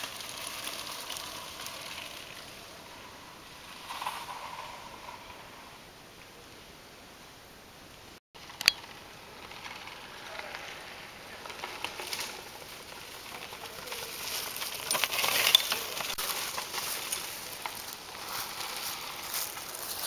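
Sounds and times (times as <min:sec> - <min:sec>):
bike tyres crackling over leaves: 0:00.0 - 0:06.3, 0:08.4 - 0:20.0
sharp bike clicks: 0:08.4 - 0:10.6.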